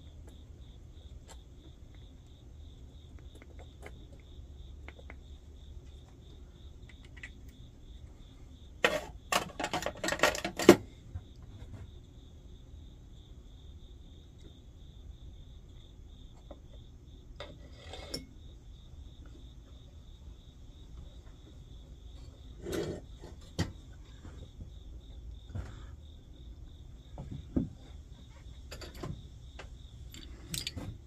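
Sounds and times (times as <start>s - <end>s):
cricket chirping: 0.0s - 31.0s
metal parts clicking and knocking: 8.8s - 10.8s, 28.7s - 31.0s.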